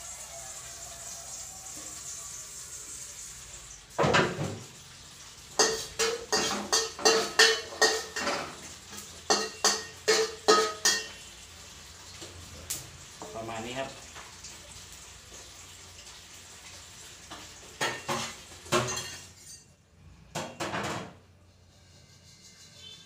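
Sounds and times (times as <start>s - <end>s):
metal spatula scraping wok: 5.6s - 11.3s, 17.8s - 19.8s, 21.3s - 23.0s.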